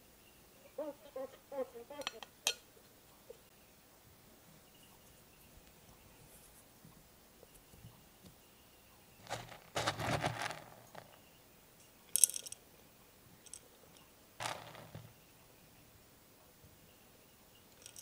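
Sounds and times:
granules rattling against glass: 0:14.4 - 0:15.1, 0:17.8 - 0:18.0.

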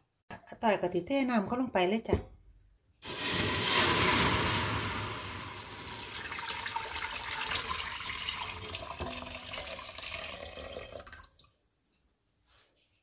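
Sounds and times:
liquid pouring into metal pot: 0:03.0 - 0:11.5.

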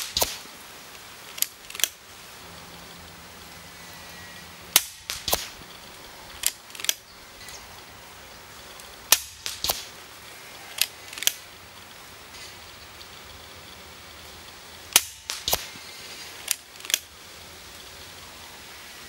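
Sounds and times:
sharp crack: 0:00.0 - 0:02.0, 0:04.7 - 0:07.6, 0:08.8 - 0:10.2, 0:10.8 - 0:11.5, 0:14.8 - 0:17.1
air rifle shots: 0:04.7 - 0:05.7, 0:09.1 - 0:10.0, 0:14.9 - 0:17.0.

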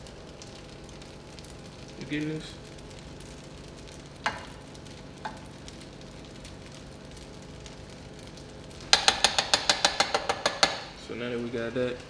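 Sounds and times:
meat sizzling in a hot pan: 0:00.0 - 0:12.0
metal utensil knocking on pan: 0:08.9 - 0:10.9.

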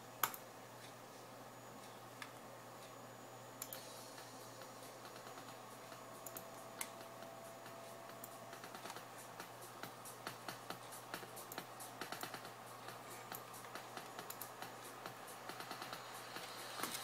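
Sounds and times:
low hum: 0:00.0 - 0:17.0
computer mouse and keyboard clicks: 0:06.2 - 0:07.0, 0:08.2 - 0:09.0, 0:10.4 - 0:14.7.

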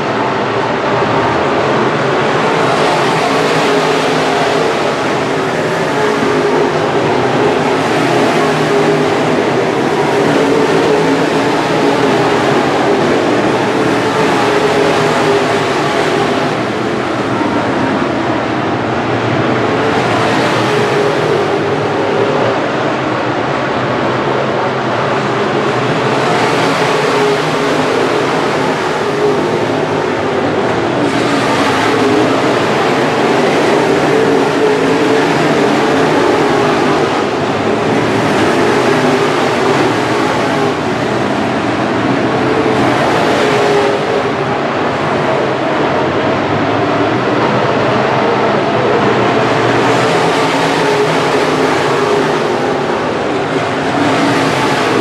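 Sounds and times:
race car engines droning: 0:00.0 - 0:55.0.

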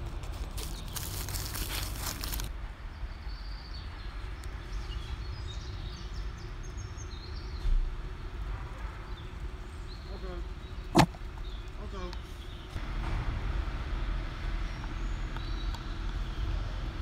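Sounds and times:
dry leaves rustling: 0:00.0 - 0:02.6
birds chirping: 0:00.6 - 0:12.8, 0:14.6 - 0:17.0.

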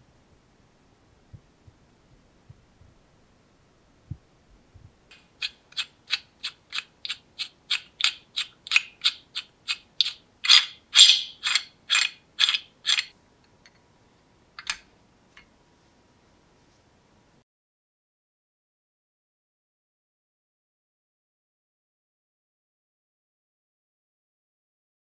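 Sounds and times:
wrench adjusting nut clicking: 0:05.4 - 0:13.8.

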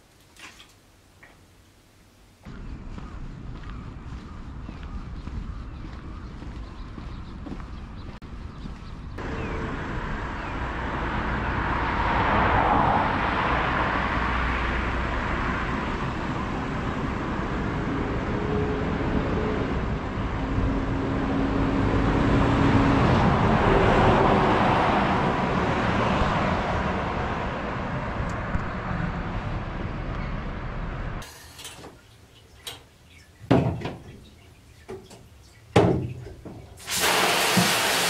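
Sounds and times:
steady traffic hum: 0:00.0 - 0:38.0
cars passing: 0:02.5 - 0:31.4.

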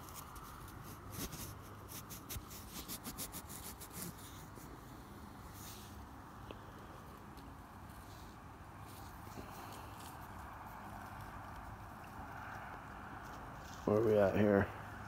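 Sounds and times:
coin rubbing on denim: 0:00.0 - 0:06.0.

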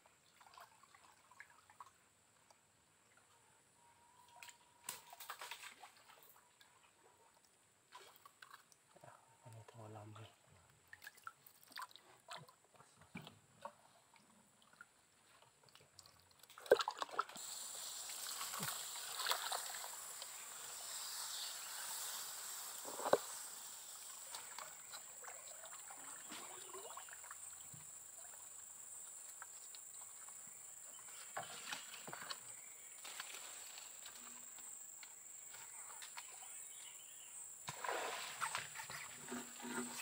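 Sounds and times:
steady high hiss: 0:17.4 - 0:40.0
water sloshing: 0:37.7 - 0:40.0.

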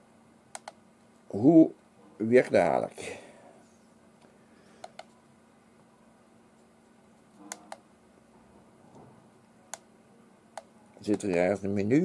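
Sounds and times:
radio push buttons clicking: 0:00.6 - 0:00.8, 0:04.8 - 0:05.1.

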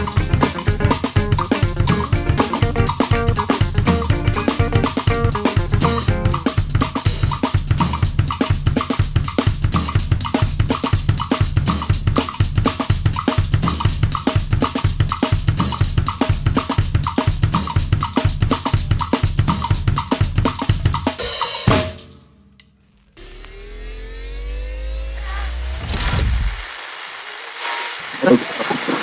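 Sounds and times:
heavy bass line: 0:00.0 - 0:06.6
fast drum-kit beat: 0:00.0 - 0:22.2.

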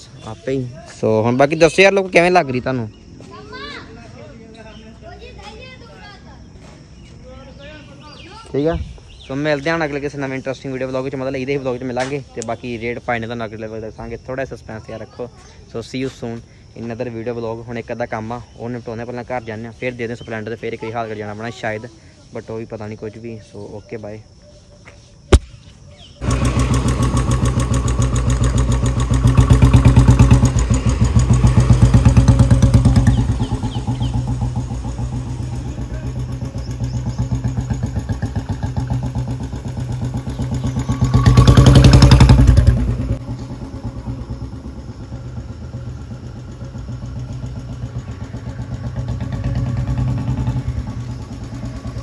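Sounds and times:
motorcycle engine running: 0:26.2 - 0:52.0.

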